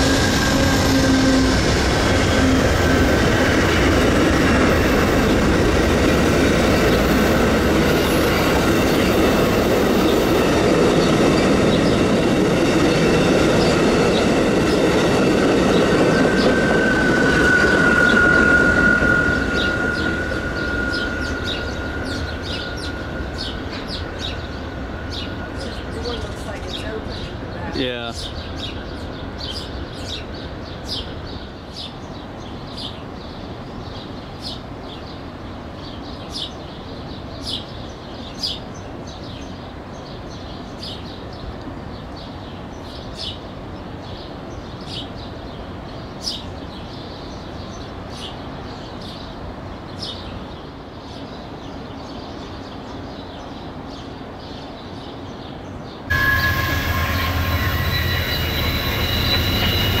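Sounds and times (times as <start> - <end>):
locomotive wheels squealing: 0.0 - 3.1, 16.0 - 23.9, 56.1 - 60.0
train rumbling: 0.0 - 37.6, 56.0 - 60.0.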